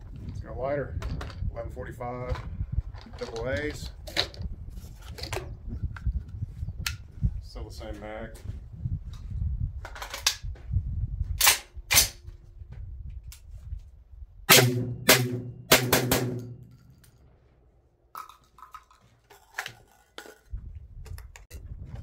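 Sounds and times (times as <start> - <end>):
shotgun shots: 14.5 - 16.7.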